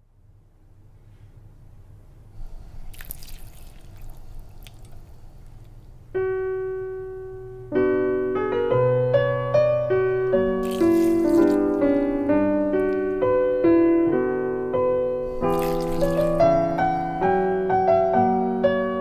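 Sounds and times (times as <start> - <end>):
water dripping and splashing: 2.8 - 5.1, 10.6 - 13.0, 15.3 - 16.8
piano chords: 5.9 - 19.0.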